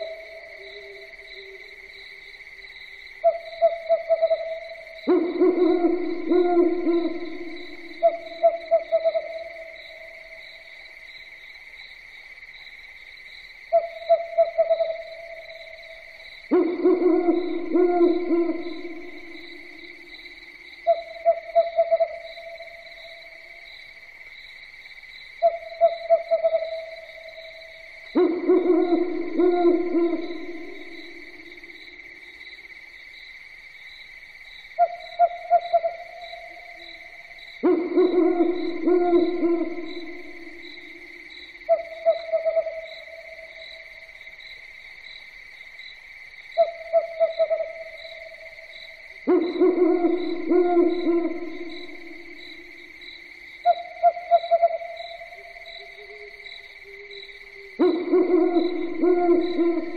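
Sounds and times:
owl hooting: 3.2 - 10.4, 13.7 - 23.4, 25.4 - 32.0, 34.8 - 36.8, 37.6 - 43.6, 46.6 - 48.6, 49.2 - 53.0, 53.6 - 59.9.

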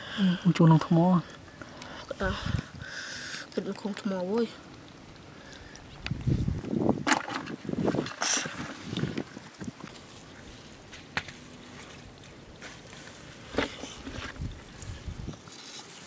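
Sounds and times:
bare feet scuffing sandy ground: 9.9 - 16.0
soft thumps and scrapes: 12.6 - 15.9.

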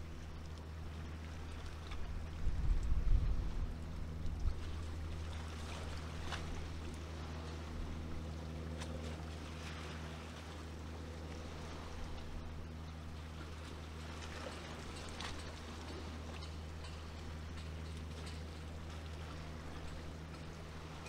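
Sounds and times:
motorboat engine drone: 0.0 - 21.0
wind buffeting microphone: 2.1 - 5.0.

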